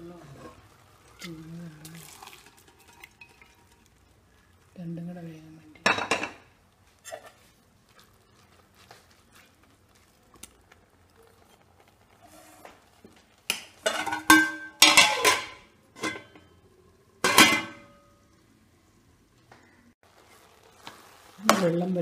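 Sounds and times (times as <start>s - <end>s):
metal pot lid clanking: 13.8s - 16.5s, 17.2s - 18.0s.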